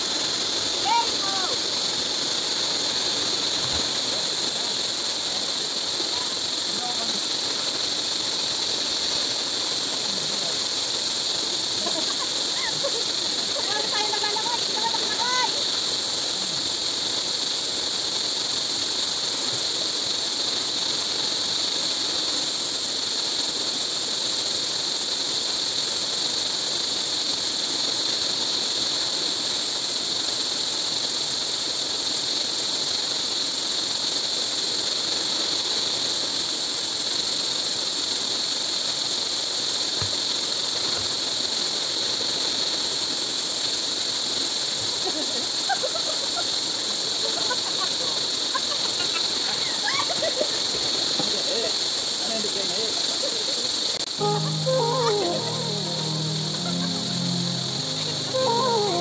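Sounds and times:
river and waterfall rushing: 0:54.0 - 0:59.0.

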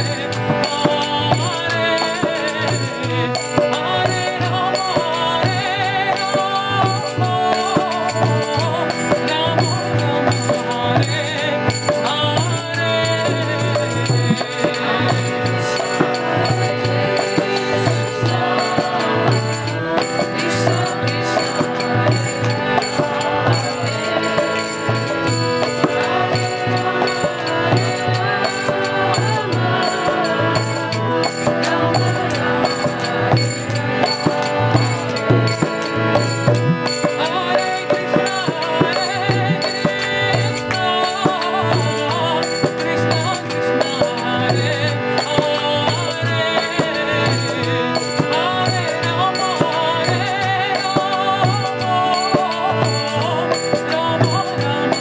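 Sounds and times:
harmonium chords: 0:00.0 - 0:55.0
voices chanting: 0:12.2 - 0:36.4.

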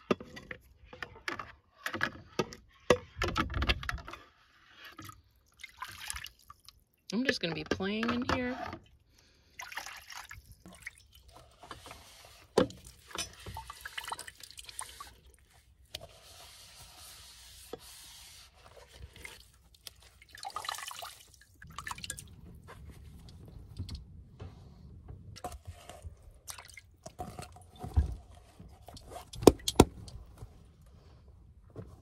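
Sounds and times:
tap water running and splashing: 0:09.6 - 0:16.3, 0:18.7 - 0:22.3.

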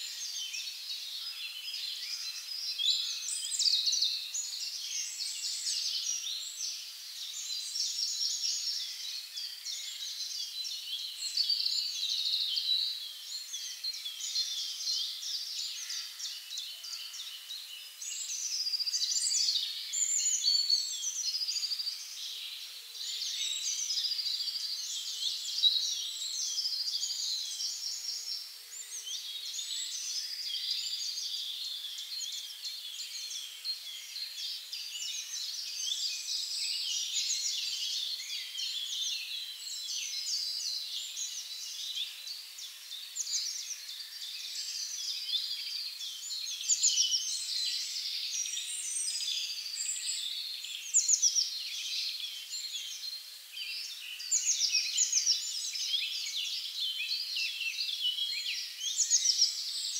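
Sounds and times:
songbirds chorus: 0:00.0 - 0:59.9.

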